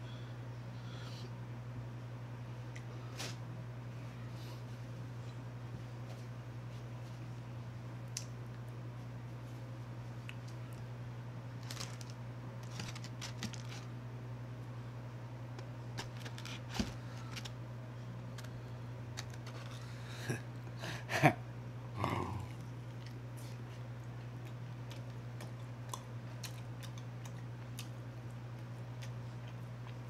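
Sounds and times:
steady low hum: 0.0s - 30.0s
chicken wing rustling in tray: 11.6s - 14.0s, 15.9s - 17.6s
biting and wet mouth sounds: 22.4s - 30.0s.

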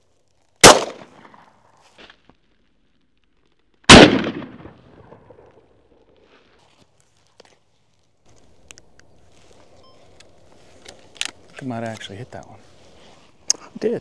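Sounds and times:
shotgun shots echoing: 0.6s - 1.5s, 3.9s - 5.6s.

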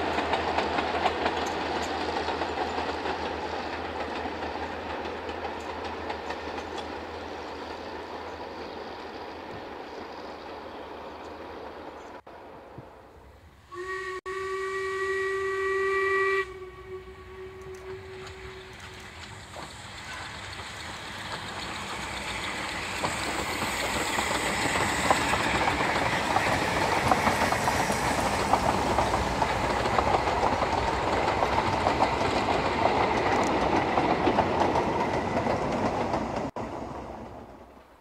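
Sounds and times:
wheels clicking over rail joints: 0.0s - 8.4s, 17.5s - 36.7s
steam train passing: 0.0s - 38.0s.

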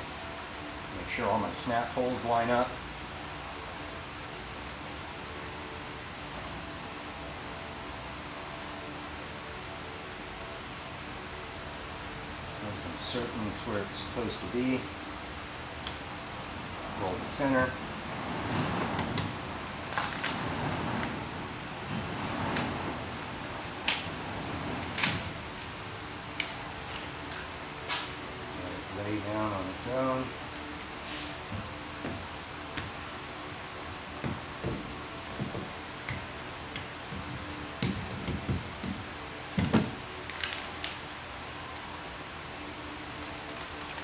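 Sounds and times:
steady hiss: 0.0s - 44.0s
steady low hum: 0.0s - 44.0s
hand roller pressing foam: 34.2s - 40.0s.

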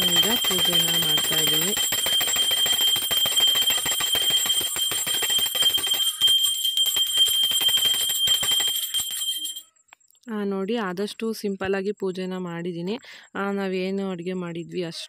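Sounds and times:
handheld bell ringing rapidly: 0.0s - 9.7s.

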